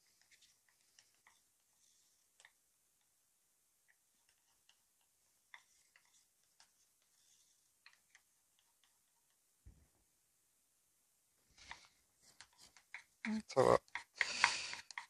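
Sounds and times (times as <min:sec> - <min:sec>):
stick knocking plastic cups: 0:12.7 - 0:15.0.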